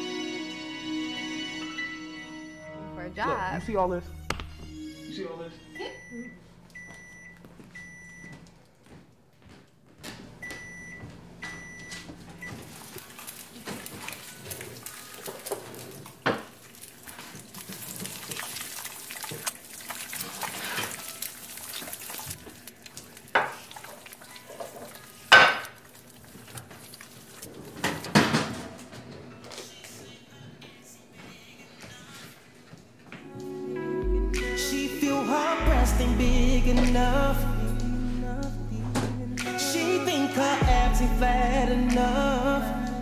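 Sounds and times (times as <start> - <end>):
pots and dishes clattering: 12.4 - 18.2, 20.3 - 21.3, 23.3 - 26.6, 27.5 - 29.4.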